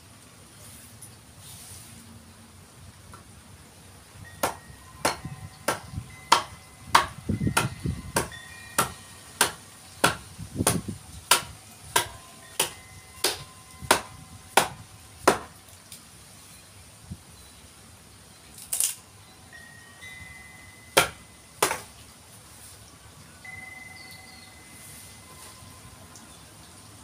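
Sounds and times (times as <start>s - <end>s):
metallic ring: 4.3s - 10.0s
mallet knocking on steel blade: 4.4s - 15.5s, 21.0s - 21.8s.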